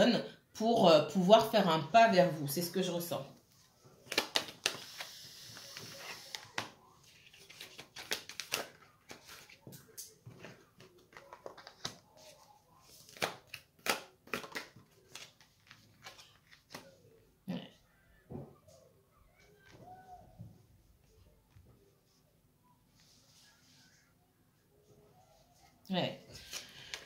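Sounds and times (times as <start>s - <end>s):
cards rustling: 4.0s - 17.0s, 26.3s - 27.0s.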